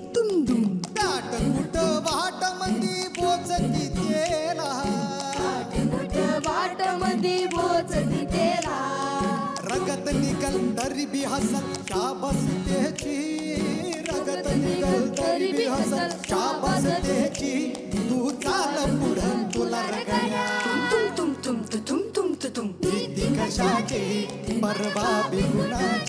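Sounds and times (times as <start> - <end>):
man singing into a microphone: 0.1 - 6.4, 9.3 - 26.0
band playing: 1.0 - 15.1.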